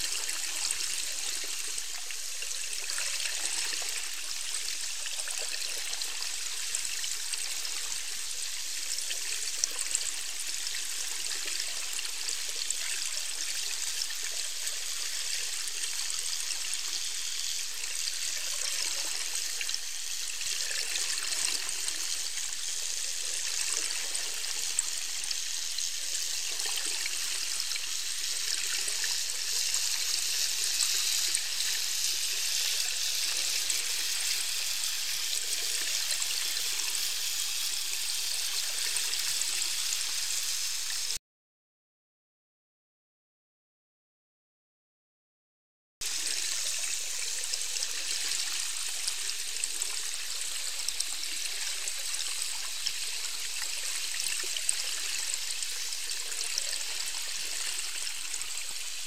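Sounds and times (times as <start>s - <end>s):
underwater water hiss: 0.0s - 41.2s.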